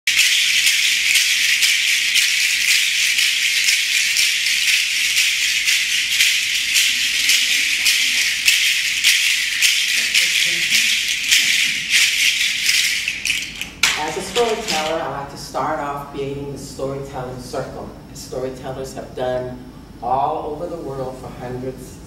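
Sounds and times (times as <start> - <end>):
hand-held rattle shaking: 0.0 - 15.2.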